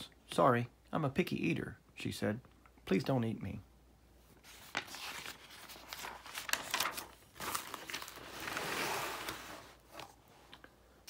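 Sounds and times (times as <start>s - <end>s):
paper page turning: 4.4s - 10.2s.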